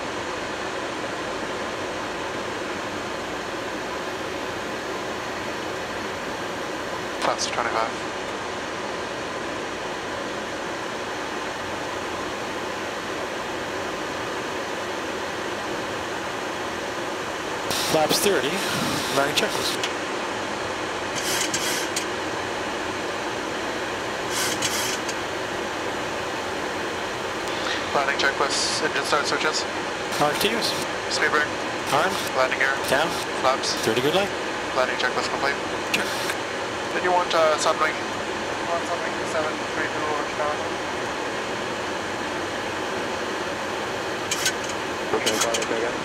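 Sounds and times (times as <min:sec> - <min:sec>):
cockpit air-conditioning rush: 0:00.0 - 0:46.0
short hissing bursts: 0:17.7 - 0:19.8, 0:21.2 - 0:22.0, 0:24.3 - 0:25.1, 0:36.0 - 0:36.4
cockpit airflow rushing: 0:17.7 - 0:19.9.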